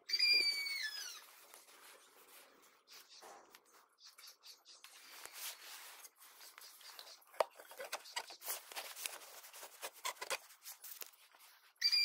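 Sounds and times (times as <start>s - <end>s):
clothing rustling and handling noise: 7.4s - 11.8s.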